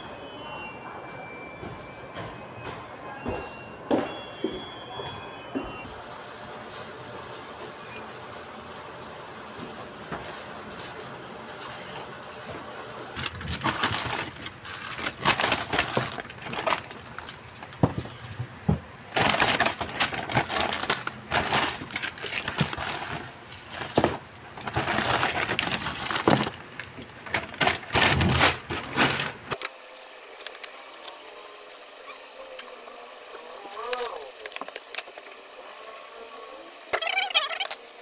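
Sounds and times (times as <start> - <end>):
paper bag and packets rustling: 13.1 - 18.2, 19.0 - 31.3, 33.7 - 35.4.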